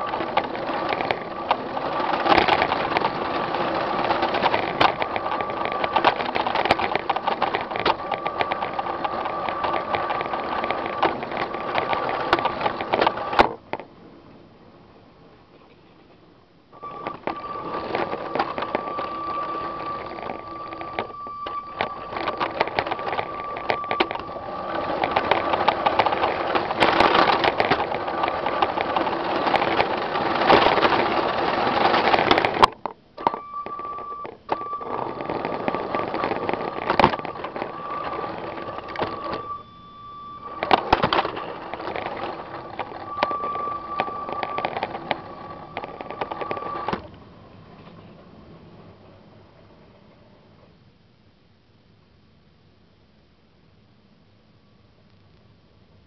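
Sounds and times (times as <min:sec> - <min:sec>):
toy train motor whine: 0:00.0 - 0:13.5, 0:16.8 - 0:47.0
plastic rattling: 0:00.0 - 0:13.9, 0:16.8 - 0:39.6, 0:40.3 - 0:47.1
wheels clicking on track: 0:00.0 - 0:13.9, 0:16.8 - 0:48.2.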